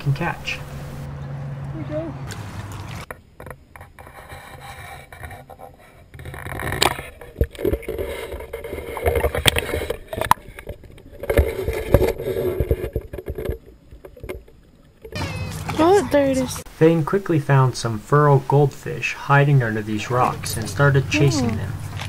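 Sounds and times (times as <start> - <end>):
water splashing and gurgling: 2.3 - 3.1.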